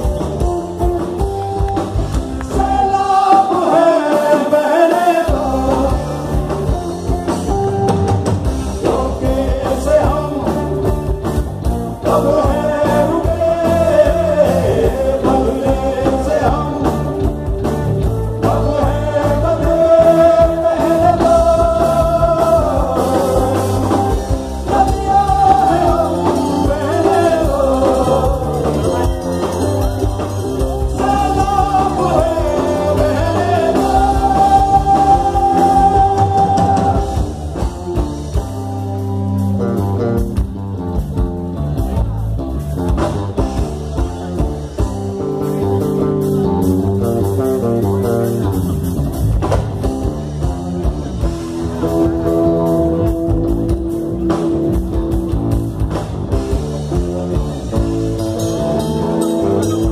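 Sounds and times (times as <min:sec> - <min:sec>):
drum kit: 0:00.0 - 0:59.9
guitars: 0:00.0 - 0:59.9
person singing lead vocal: 0:02.3 - 0:07.9, 0:08.6 - 0:38.0.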